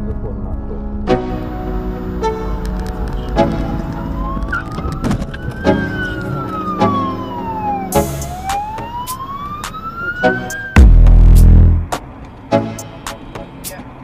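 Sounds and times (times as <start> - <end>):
ambulance siren wailing: 2.0 - 11.0.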